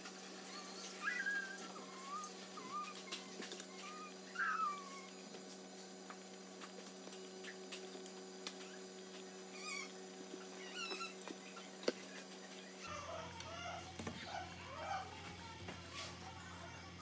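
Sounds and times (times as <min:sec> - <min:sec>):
low electrical hum: 0:00.0 - 0:17.0
high squeaky chirps: 0:00.4 - 0:05.1, 0:09.5 - 0:11.7.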